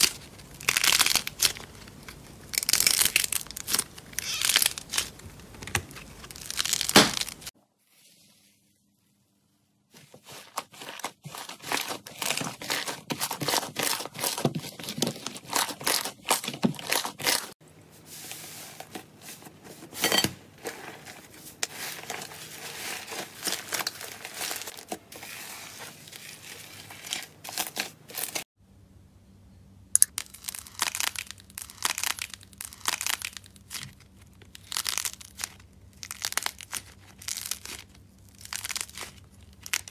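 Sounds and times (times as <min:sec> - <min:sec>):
slime crackling and popping: 0:00.0 - 0:05.2, 0:06.2 - 0:07.5, 0:30.0 - 0:39.9.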